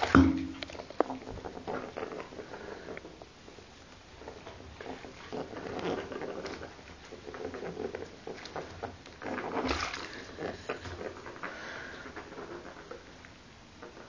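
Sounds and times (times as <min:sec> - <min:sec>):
rats splashing in water: 0:09.5 - 0:11.0.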